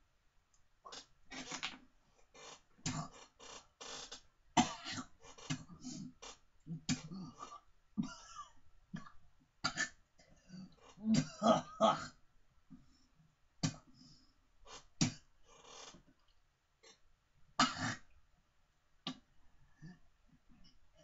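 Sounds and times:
man coughing: 0:08.0 - 0:09.1, 0:11.0 - 0:12.2.

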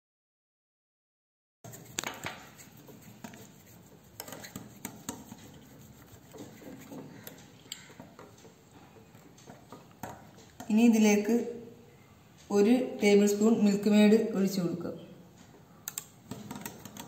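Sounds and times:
whisk clicking against glass bowl: 0:02.5 - 0:08.4.

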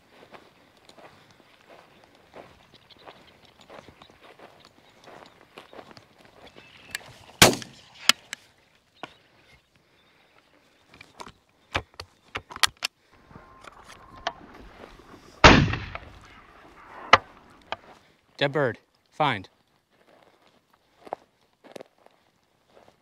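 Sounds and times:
footsteps in grass: 0:00.0 - 0:11.5, 0:13.2 - 0:18.3, 0:18.9 - 0:23.0
shotgun shots: 0:07.4 - 0:07.8, 0:13.3 - 0:17.7.

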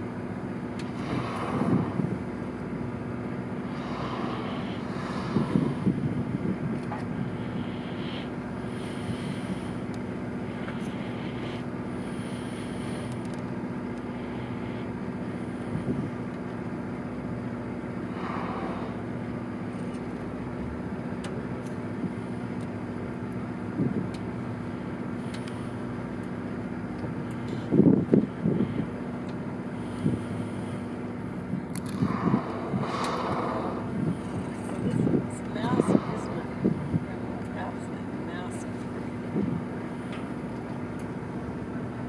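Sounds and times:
boat engine droning: 0:00.0 - 0:42.0
wind noise on microphone: 0:01.0 - 0:02.3, 0:05.0 - 0:07.3, 0:27.6 - 0:28.9, 0:31.5 - 0:37.4, 0:39.3 - 0:39.8.

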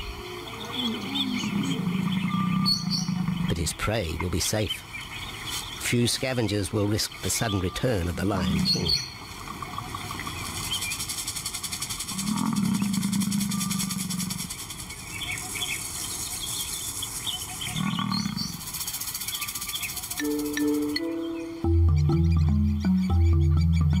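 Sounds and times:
bird chirps: 0:00.0 - 0:03.6, 0:04.2 - 0:11.4, 0:12.2 - 0:24.0
lion calling: 0:00.0 - 0:03.8, 0:07.5 - 0:09.1, 0:12.1 - 0:14.6, 0:17.7 - 0:18.7
steady high hiss: 0:03.0 - 0:21.8.

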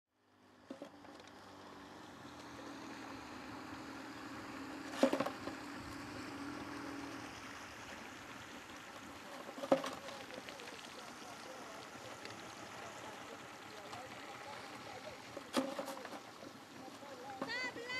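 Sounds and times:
river water rushing: 0:00.5 - 0:17.9
pole splashing in water: 0:03.8 - 0:17.9.

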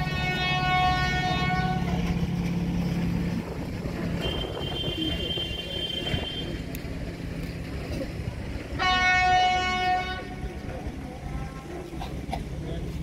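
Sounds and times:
locomotive horn: 0:00.0 - 0:02.4, 0:04.0 - 0:06.7, 0:08.7 - 0:11.8
locomotive engine drone: 0:00.0 - 0:13.0.

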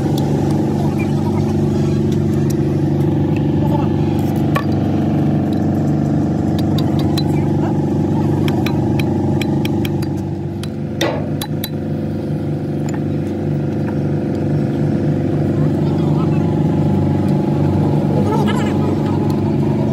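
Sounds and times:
engine running: 0:00.0 - 0:19.9
loud metal clank: 0:11.0 - 0:11.8.

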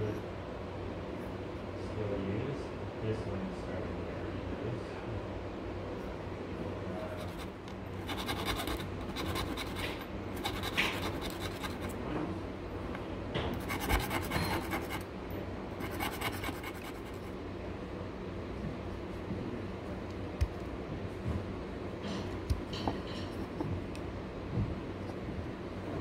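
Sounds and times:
steel tool scraping wood: 0:08.1 - 0:11.9, 0:13.6 - 0:15.0, 0:15.8 - 0:17.2.

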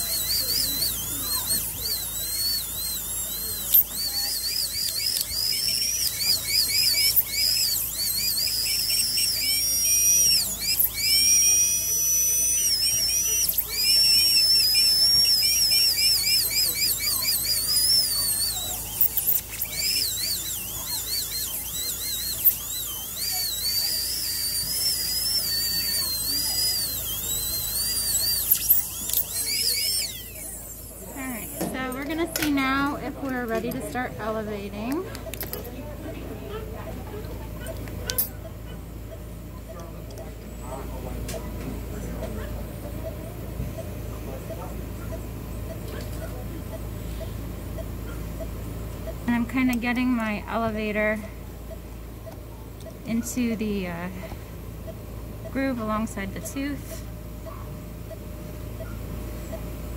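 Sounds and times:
dental drill whining: 0:00.0 - 0:35.6.

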